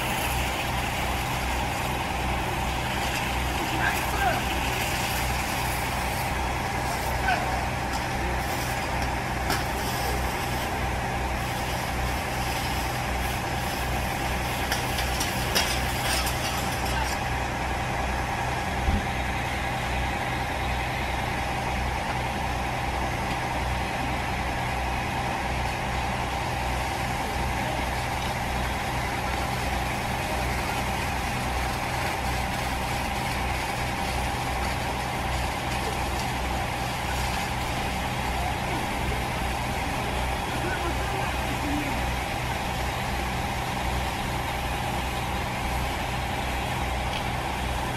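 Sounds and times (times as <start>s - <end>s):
diesel engine droning: 0.0s - 47.9s
pump whine: 0.0s - 47.9s.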